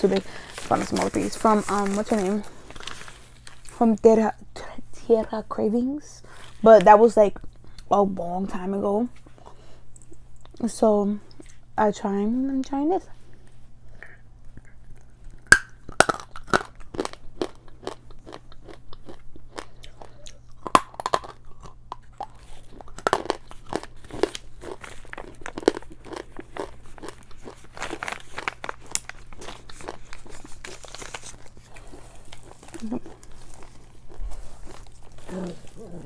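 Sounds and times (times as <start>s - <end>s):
clay being bitten and chewed: 14.5s - 36.0s.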